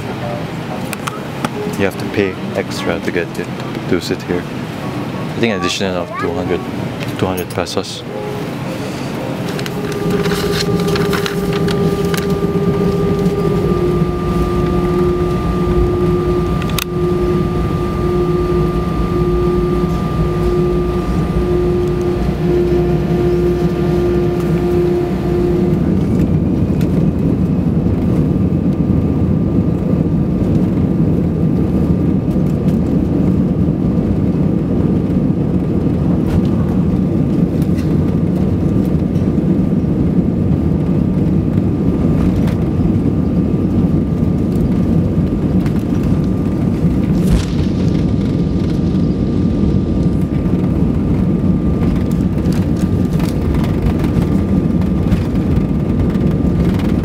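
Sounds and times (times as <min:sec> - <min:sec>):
faint high whine: 0:00.0 - 0:28.1, 0:41.9 - 0:57.0
jet engine and airflow rumble: 0:00.0 - 0:57.0
pulsing tone: 0:08.0 - 0:26.8, 0:46.0 - 0:54.6.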